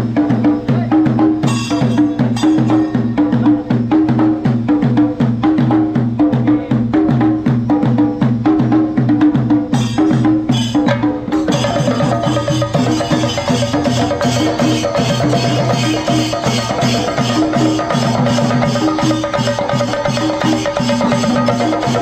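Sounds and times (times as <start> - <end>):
drums beaten with sticks: 0.0 - 22.0
hissing cymbal clash: 1.4 - 3.4.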